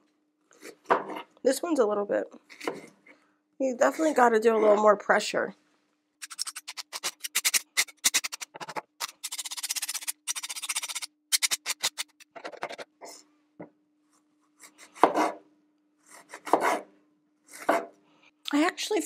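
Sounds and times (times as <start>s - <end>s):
knife cutting apple on board: 2.5s - 2.9s, 14.6s - 15.4s, 16.0s - 16.9s, 17.5s - 18.0s
knife scraping on honing rod: 6.2s - 12.8s.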